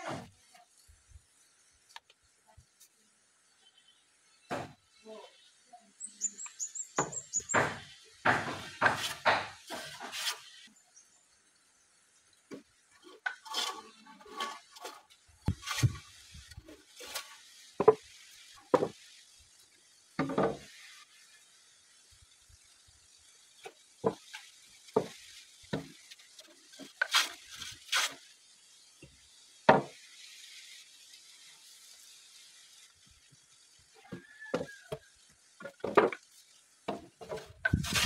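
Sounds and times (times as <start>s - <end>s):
wooden planks knocking and scraping: 7.0s - 10.4s, 12.5s - 18.1s, 18.7s - 19.0s, 20.2s - 20.7s, 23.6s - 28.2s, 29.7s - 30.0s, 34.1s - 38.0s.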